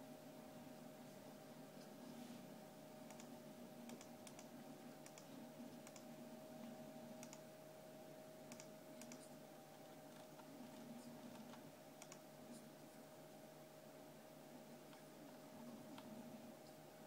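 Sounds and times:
faint steady hum: 0.0 - 17.0
light clicks: 3.1 - 3.3, 7.2 - 7.4, 8.5 - 9.3, 11.3 - 12.2.

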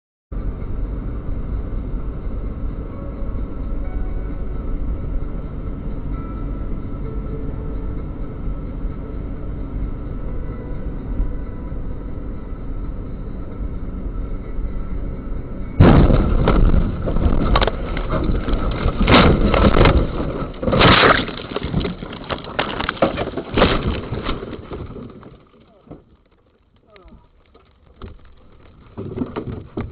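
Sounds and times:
road and engine noise in car: 0.3 - 15.8
car crash impact: 15.8 - 26.3
heavy bangs and crunches: 15.8 - 29.9.

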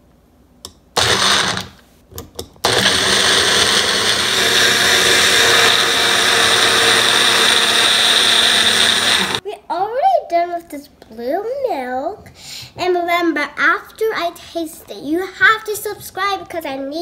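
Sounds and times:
blender blending: 1.0 - 1.8, 2.6 - 9.4.

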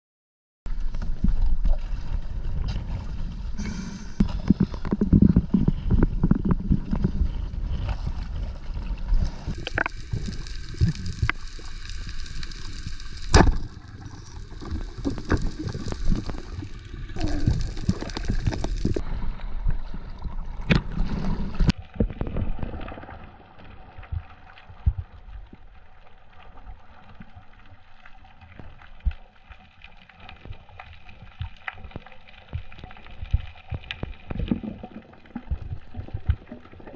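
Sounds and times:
water churning and gurgling: 0.7 - 36.9.

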